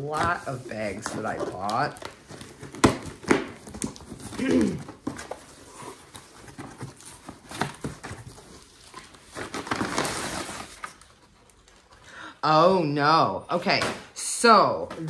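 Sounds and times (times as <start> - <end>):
paper rustling and crinkling: 0.0 - 12.0
cardboard box clicks and rustles: 0.2 - 11.0.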